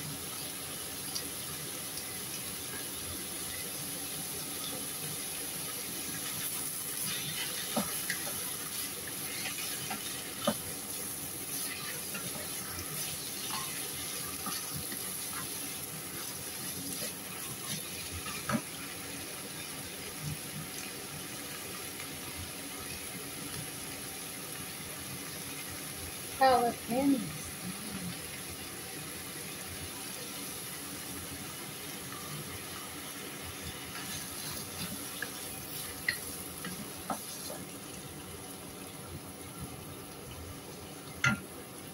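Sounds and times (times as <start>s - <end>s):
meat sizzling in a frying pan: 0.0s - 41.9s
wooden spoon scraping a pan: 33.8s - 37.6s
spoon knocking against pan: 41.2s - 41.5s.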